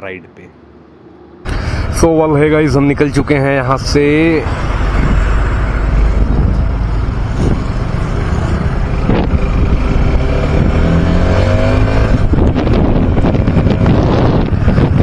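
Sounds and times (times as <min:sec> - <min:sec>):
wind rushing over microphone: 0:01.4 - 0:15.0
motorcycle engine accelerating: 0:04.4 - 0:15.0.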